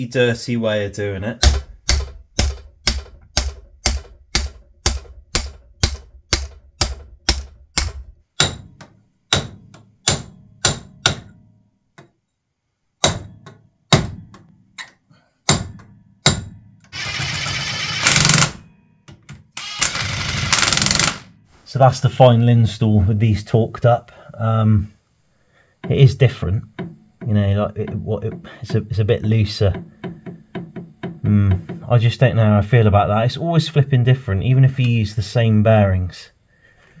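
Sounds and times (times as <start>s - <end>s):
cordless impact wrench rattling: 16.9s - 18.6s, 19.6s - 21.3s.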